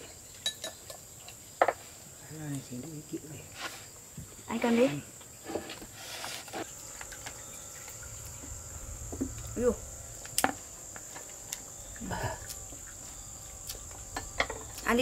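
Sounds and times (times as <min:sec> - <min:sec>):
insects droning: 0:00.0 - 0:15.0.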